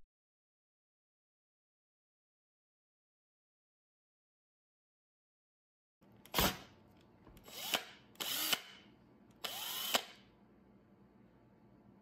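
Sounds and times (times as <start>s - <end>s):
cordless drill bursts: 7.4s - 8.8s, 9.4s - 10.2s.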